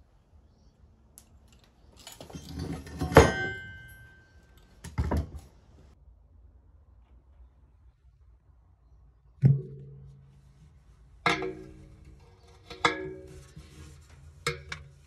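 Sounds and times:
metal parts clanking on wood: 1.5 - 5.4
scraping clatter: 1.8 - 4.1.

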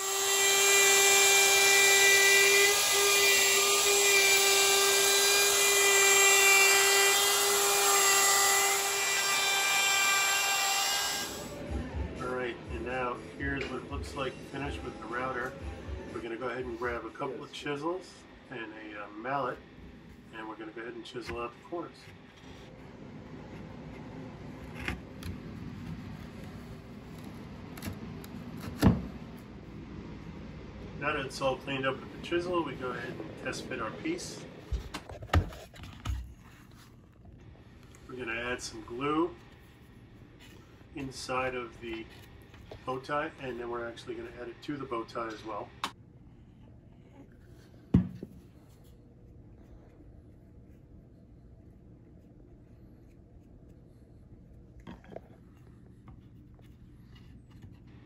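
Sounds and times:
router whining while cutting wood: 0.0 - 11.5
low shop hum: 0.0 - 58.0
knock: 47.9 - 48.2.

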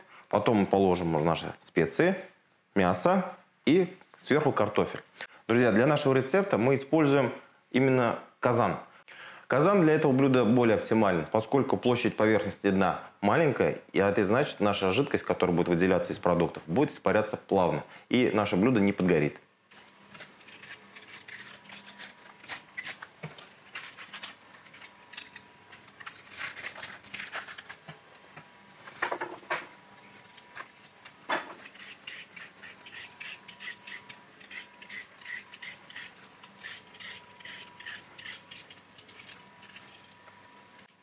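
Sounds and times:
knife scraping onion skin: 19.9 - 27.8, 31.6 - 40.1
peeler scraping carrot: 20.1 - 23.1, 31.6 - 40.2.

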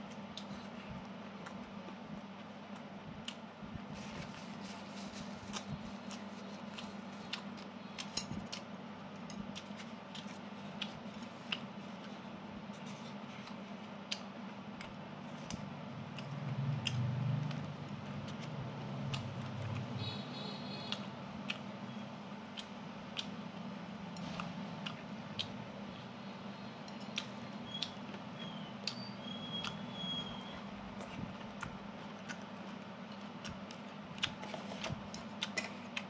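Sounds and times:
chewing: 12.8 - 19.9, 24.2 - 25.6, 30.9 - 36.0.

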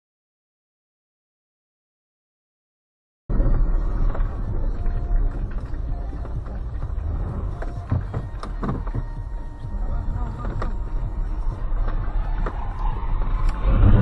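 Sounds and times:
car engine and tyres rumbling: 3.3 - 14.0
knocks and clicks: 4.0 - 9.4.

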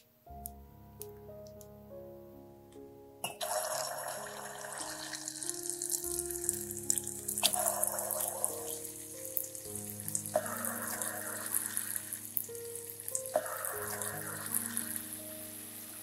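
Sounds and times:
dough sizzling in hot oil: 3.4 - 16.0.

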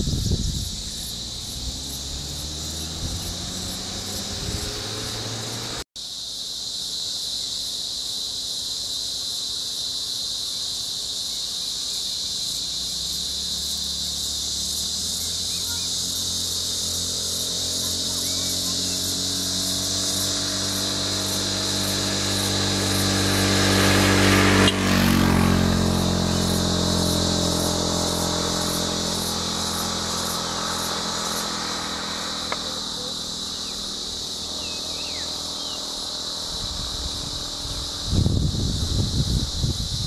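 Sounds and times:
rough low rumbling: 0.0 - 5.6
vehicle engine idling: 0.0 - 5.8, 10.2 - 40.0
high insect drone: 0.0 - 40.0.

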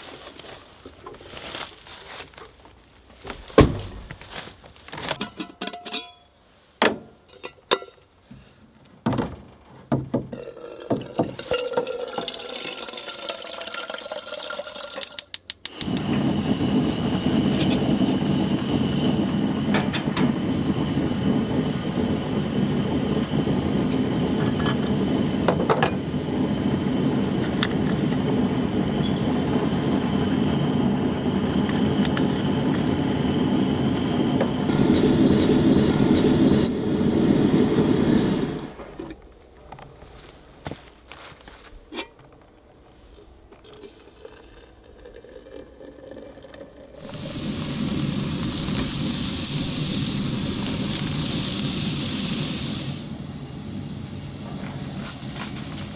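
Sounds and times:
water running into a kettle: 10.4 - 38.7, 45.0 - 53.1
gas burner rushing: 15.1 - 39.2, 47.0 - 55.9
stove igniter clicking: 15.4 - 16.2, 34.4 - 37.5, 47.0 - 53.1.

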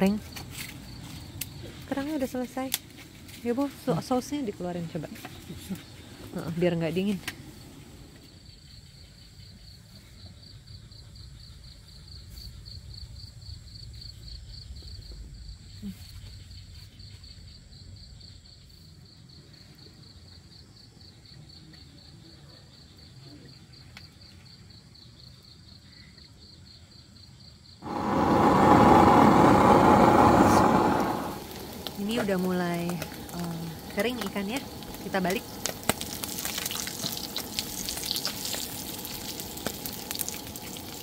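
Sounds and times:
crickets chirping: 0.0 - 41.0
low background rumble: 27.8 - 41.0
fish frying in hot oil: 31.0 - 41.0.

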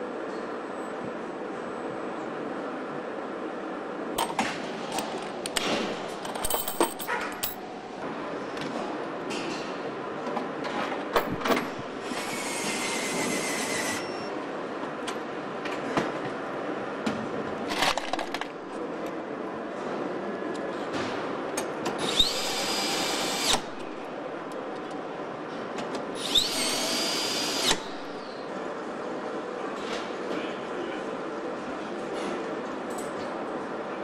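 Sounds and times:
assembly line background din: 4.2 - 7.8.

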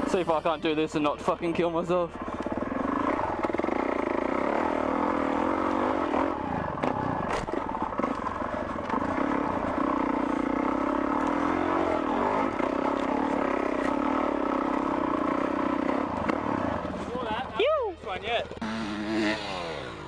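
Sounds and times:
knocks and rattles from bike: 1.2 - 17.0.

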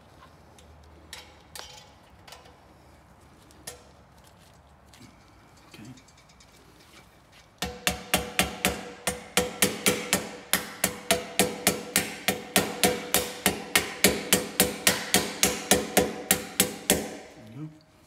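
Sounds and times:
rubber mallet striking metal pipe: 7.6 - 17.4.

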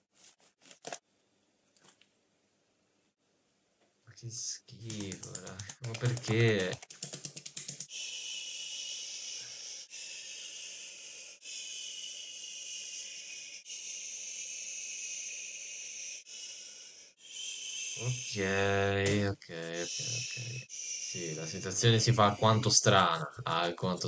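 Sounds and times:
high-pitched hiss: 7.9 - 24.0.

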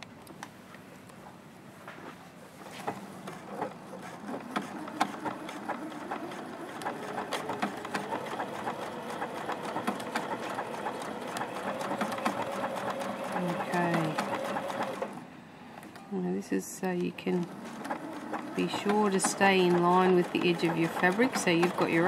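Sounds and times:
sewing machine motor hum: 2.8 - 15.3, 16.9 - 22.0
sewing machine needle ticking: 4.6 - 15.1, 17.3 - 22.0.

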